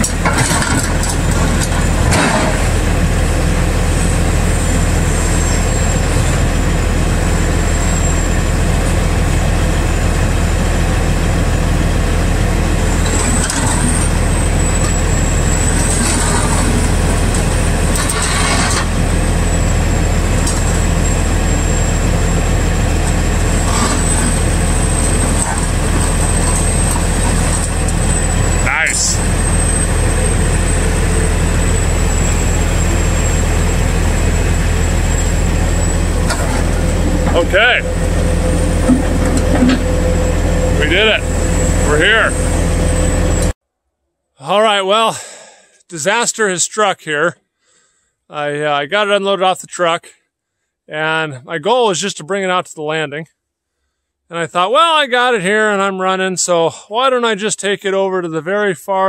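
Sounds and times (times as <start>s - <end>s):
steel tracks clanking: 0.0s - 10.4s, 12.7s - 43.6s
excavator diesel engine running: 0.0s - 43.6s
high wavering whine: 19.2s - 43.6s.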